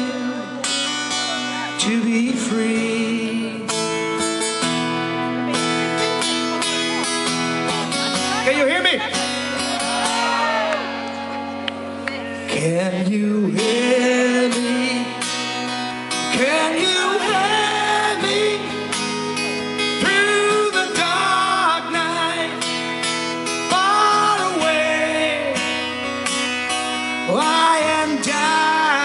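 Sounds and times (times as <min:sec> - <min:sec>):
man singing: 0:00.0 - 0:04.4, 0:12.4 - 0:26.2, 0:26.9 - 0:29.0
strummed acoustic guitar: 0:00.0 - 0:29.0.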